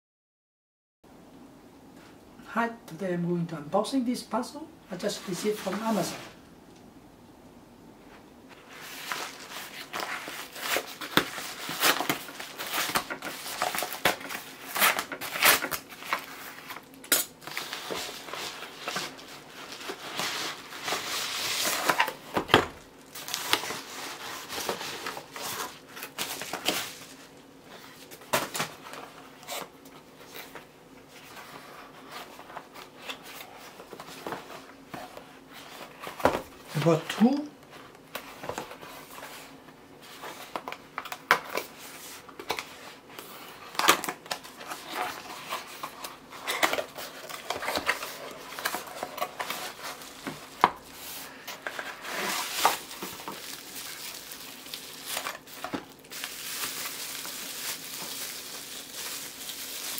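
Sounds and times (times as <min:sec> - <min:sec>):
plastic mailer crinkling: 0:08.7 - 0:27.4, 0:40.1 - 0:59.9.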